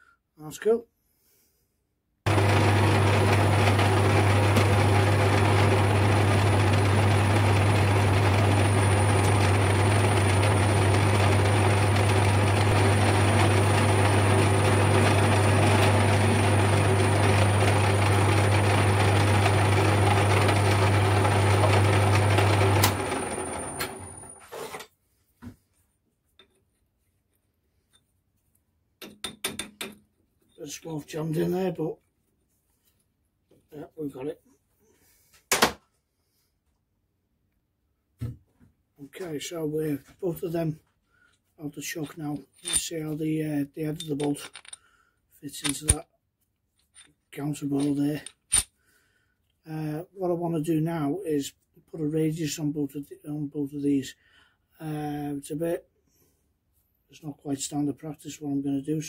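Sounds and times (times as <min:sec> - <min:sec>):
metal lathe motor hum: 0:02.3 - 0:24.4.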